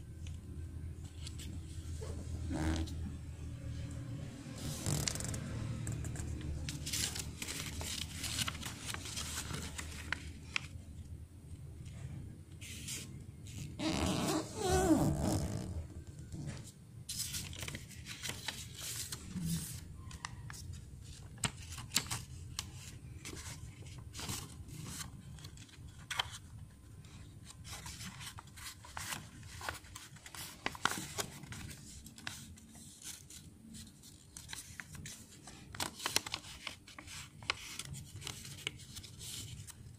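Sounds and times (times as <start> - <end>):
paper rustling and crackling: 4.6 - 10.8, 16.3 - 39.9.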